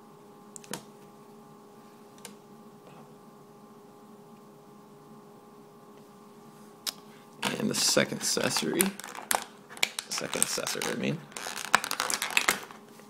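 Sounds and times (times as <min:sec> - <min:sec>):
steady hum: 0:00.0 - 0:13.0.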